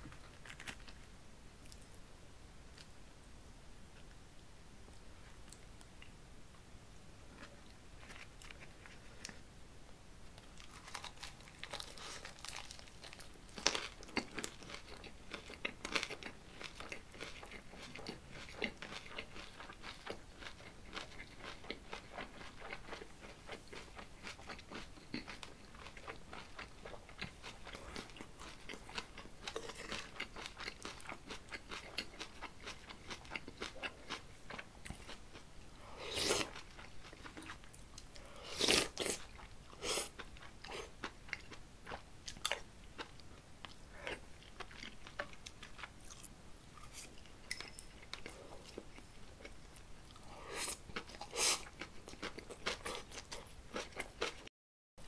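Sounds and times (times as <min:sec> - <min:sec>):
crunchy lettuce chewing: 0:00.1 - 0:01.9, 0:10.6 - 0:35.2.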